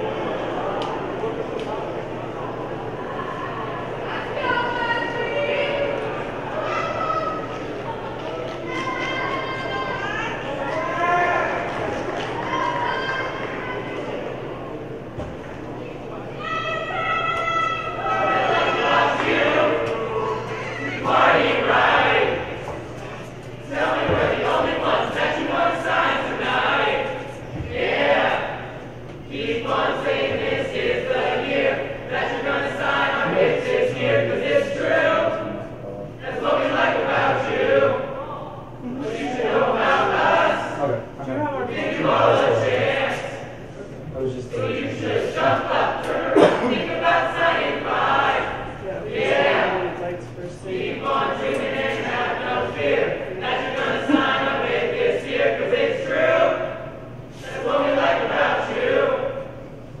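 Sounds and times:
group singing together: 18.0s - 60.0s.

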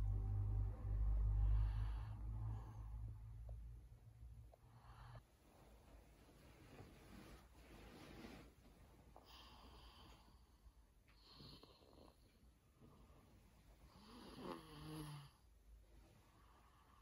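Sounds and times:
person snoring: 13.9s - 15.4s.

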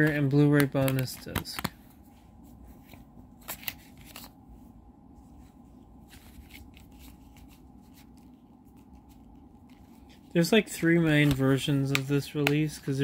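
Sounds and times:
plastic disc case clicking: 0.0s - 1.8s.

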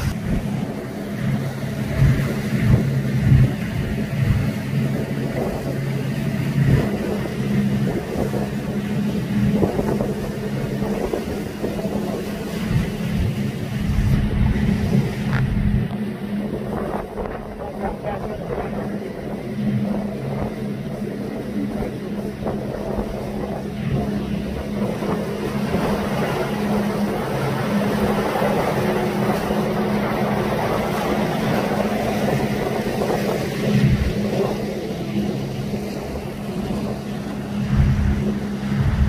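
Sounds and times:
motorboat engine humming: 0.0s - 39.0s
water rushing past hull: 0.0s - 39.0s.

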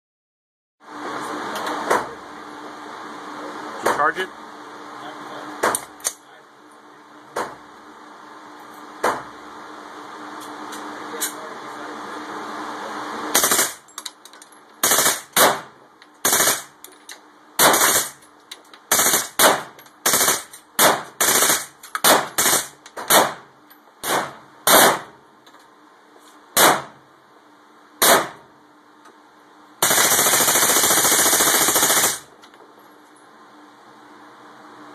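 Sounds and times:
rapid gunfire burst: 13.4s - 13.8s, 14.8s - 16.7s, 17.6s - 18.2s, 18.9s - 23.4s, 29.8s - 32.3s
rifle gunshots indoors: 24.0s - 25.1s, 28.0s - 28.4s.

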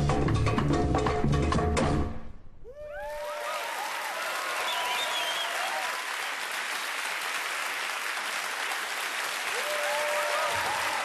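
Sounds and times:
whoops: 2.6s - 6.2s, 9.5s - 11.0s
audience applauding and cheering: 2.7s - 11.0s.

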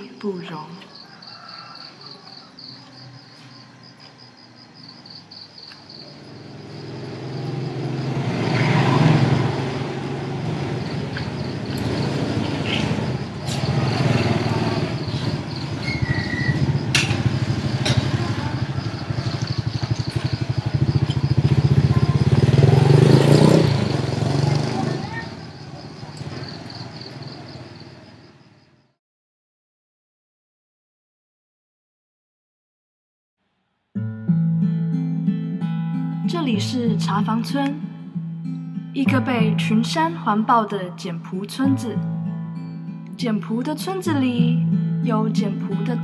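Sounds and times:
crickets chirping: 0.0s - 29.0s
motorcycle engines running: 5.7s - 28.4s.

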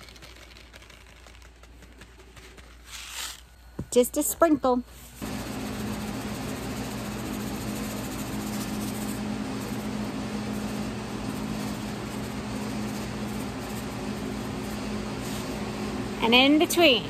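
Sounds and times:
motor humming: 5.2s - 17.0s.

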